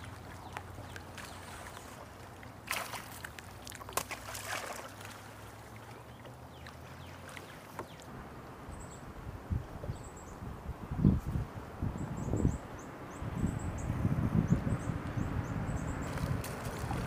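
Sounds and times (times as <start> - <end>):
fish splashing at surface: 1.1 - 5.9.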